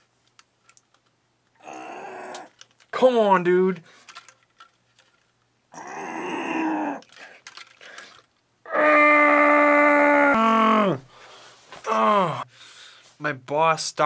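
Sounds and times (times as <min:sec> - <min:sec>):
man groaning: 0:01.6 - 0:02.5, 0:05.7 - 0:07.1, 0:08.7 - 0:11.1, 0:11.8 - 0:12.5
man yelling in pain: 0:05.8 - 0:07.0, 0:08.7 - 0:11.0, 0:11.8 - 0:12.5.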